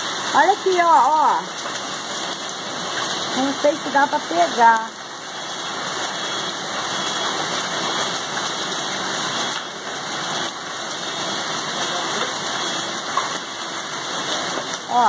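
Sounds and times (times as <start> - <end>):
hailstones falling: 0.0 - 15.0
heavy rain falling: 0.0 - 15.0.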